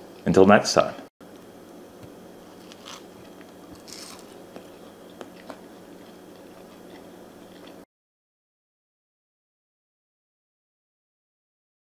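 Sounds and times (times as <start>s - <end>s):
faint room hum: 0.0s - 7.9s
person chewing crunchy food: 2.5s - 7.9s.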